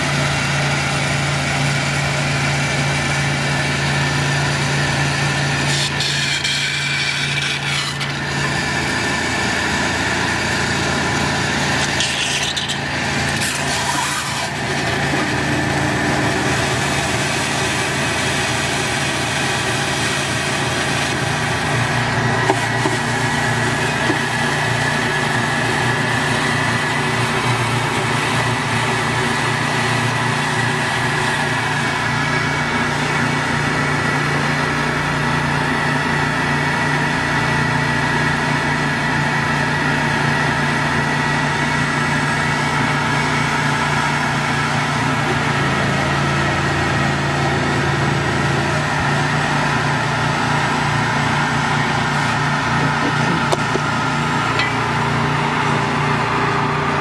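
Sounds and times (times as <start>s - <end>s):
pressure washer and vacuum drone: 0.0s - 57.0s
steady high whine: 48.6s - 57.0s.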